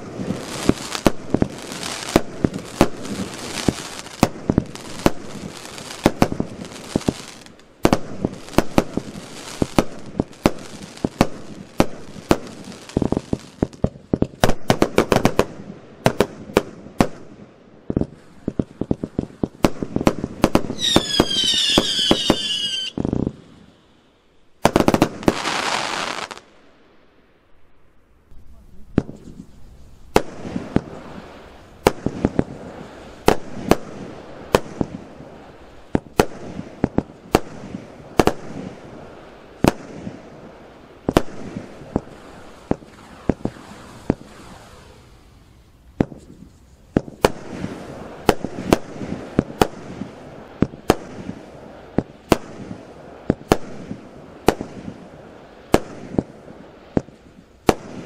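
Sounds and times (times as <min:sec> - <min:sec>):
fireworks launch thumps and bursts: 0:00.0 - 0:17.3, 0:17.9 - 0:23.6, 0:24.6 - 0:26.4, 0:28.9 - 0:35.0, 0:39.6 - 0:40.1, 0:41.1 - 0:45.2, 0:45.9 - 0:55.0, 0:55.7 - 0:58.0
crackling hiss: 0:00.0 - 0:58.0
firework whistling: 0:20.4 - 0:24.0, 0:24.6 - 0:26.4, 0:42.1 - 0:48.9.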